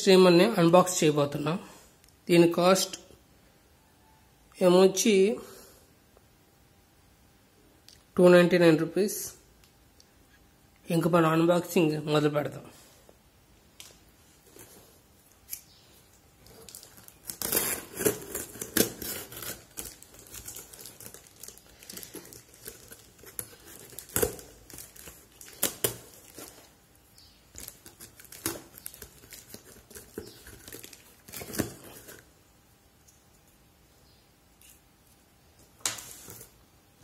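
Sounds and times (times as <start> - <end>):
tape tearing and crinkling: 13.8 - 26.9, 27.5 - 32.3
cutter slitting packing tape: 16.6 - 26.4.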